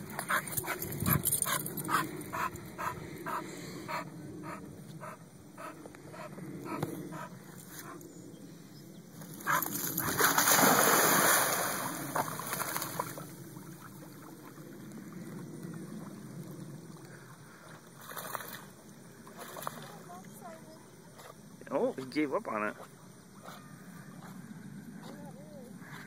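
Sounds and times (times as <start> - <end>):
water noise from swimming: 9.2 - 21.5
loud water splash: 10.0 - 13.2.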